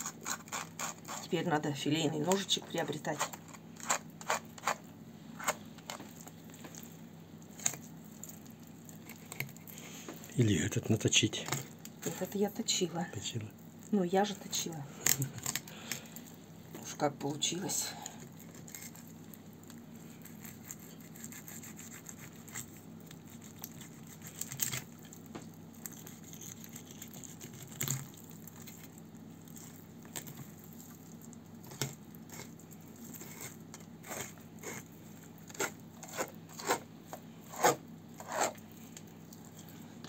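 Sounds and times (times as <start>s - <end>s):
knife scraping fish flesh: 0.0s - 1.4s, 3.0s - 6.9s, 18.2s - 19.1s, 20.0s - 25.2s, 25.8s - 31.0s, 31.6s - 39.8s.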